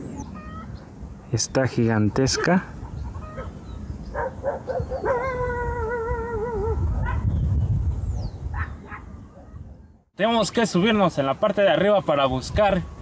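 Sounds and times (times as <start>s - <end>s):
animal calling: 2.3s - 7.2s.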